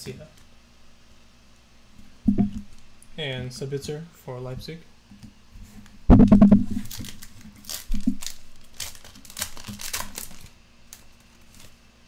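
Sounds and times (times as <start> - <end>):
foil wrapper crinkling: 6.7 - 11.8.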